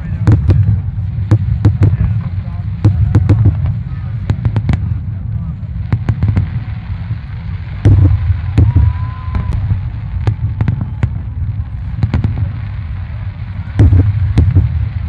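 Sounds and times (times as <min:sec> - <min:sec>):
fireworks bursting: 0:00.0 - 0:15.0
low rumble of booms: 0:00.0 - 0:15.0
faint firework whistle: 0:05.9 - 0:12.6.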